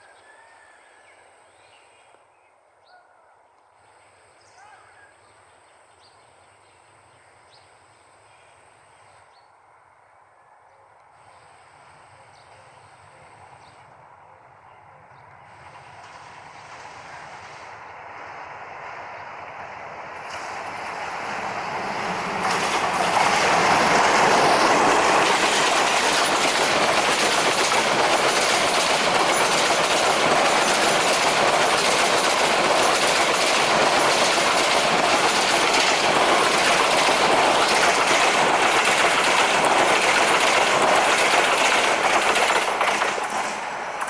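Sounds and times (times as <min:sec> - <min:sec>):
diesel locomotive passing: 0:06.8 - 0:44.0
train wheels clattering over rail joints: 0:20.2 - 0:44.0.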